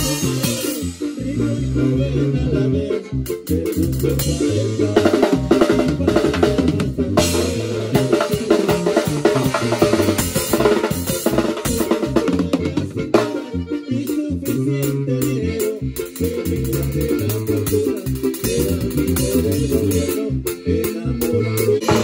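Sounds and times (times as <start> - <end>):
drum kit hits: 0.0 - 1.0, 5.2 - 12.2
live band playing: 0.0 - 22.0.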